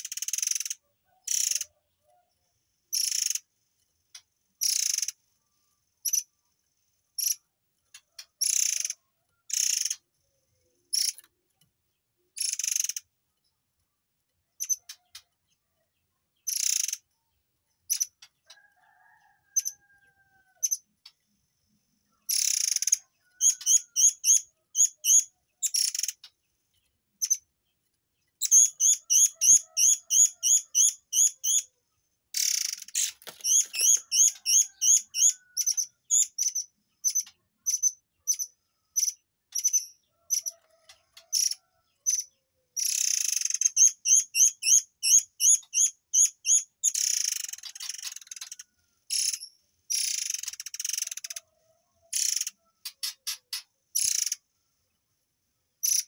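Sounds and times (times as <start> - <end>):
bird chirping: 4.1 - 6.4, 7.1 - 13.6, 14.4 - 21.3, 22.0 - 51.5, 52.1 - 54.4, 55.7 - 56.0.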